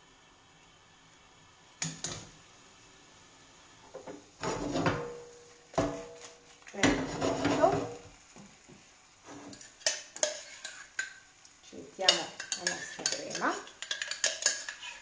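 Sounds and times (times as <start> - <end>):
metal cookware clinking and scraping: 4.0 - 8.1, 9.3 - 11.2, 12.0 - 15.0.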